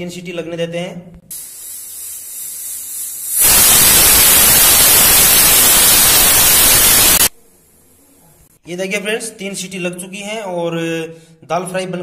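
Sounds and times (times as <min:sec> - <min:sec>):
steam hissing from valve: 0:01.3 - 0:08.1
steam blasting out: 0:01.4 - 0:07.3.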